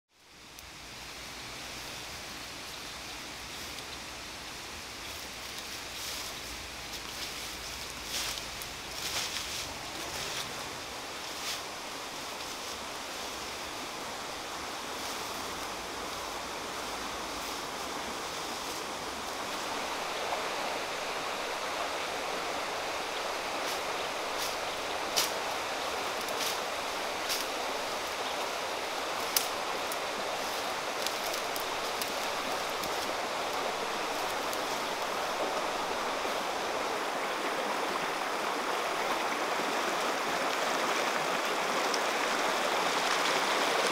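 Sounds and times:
steady rushing noise: 0:04.6 - 0:43.9
twigs snapping underfoot: 0:26.1 - 0:27.6, 0:29.2 - 0:35.1.

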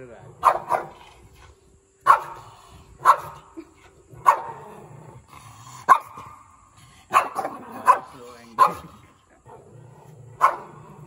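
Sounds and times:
small dog barking: 0:00.4 - 0:01.0, 0:02.0 - 0:03.5, 0:04.2 - 0:04.6, 0:05.9 - 0:06.4, 0:07.1 - 0:09.0, 0:10.4 - 0:10.9.

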